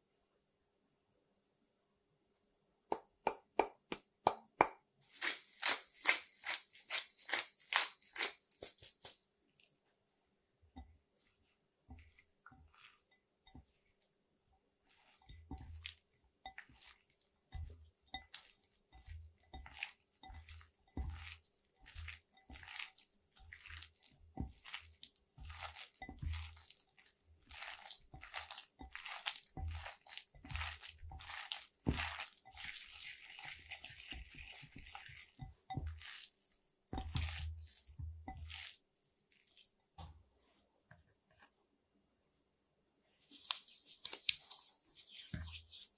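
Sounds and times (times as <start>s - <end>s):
hands squelching raw mince: 5.0s - 9.1s, 14.8s - 39.8s, 43.2s - 45.9s.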